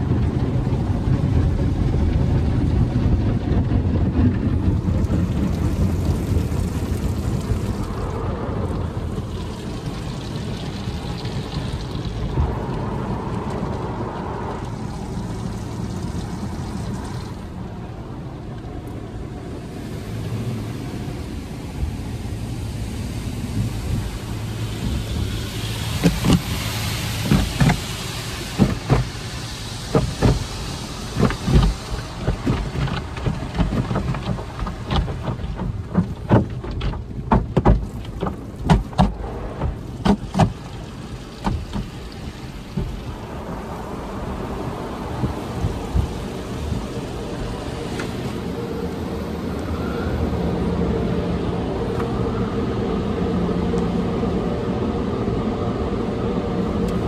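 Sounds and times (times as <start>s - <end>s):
water jets hissing on glass: 0.0s - 57.0s
car wash brushes rubbing: 18.9s - 49.8s
cloth strips slapping car: 26.0s - 43.0s.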